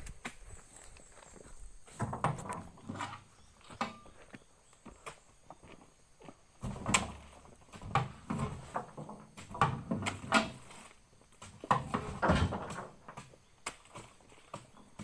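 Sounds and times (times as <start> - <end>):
fruit bunches thudding into trailer: 6.6 - 10.8, 11.5 - 15.0.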